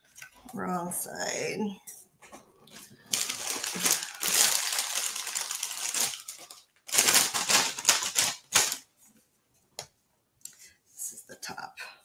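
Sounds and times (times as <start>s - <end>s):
scraping and rustling handling noise: 1.8s - 9.8s.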